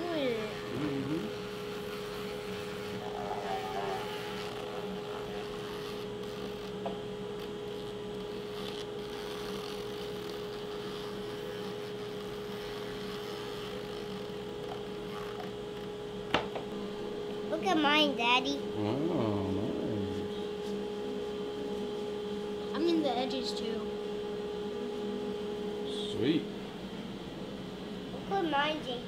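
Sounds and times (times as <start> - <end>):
rotary tool sanding wood: 0.0 - 15.9.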